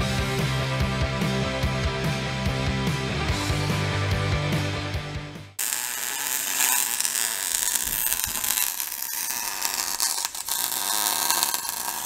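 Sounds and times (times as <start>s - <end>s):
welding arc crackling: 5.6s - 12.0s.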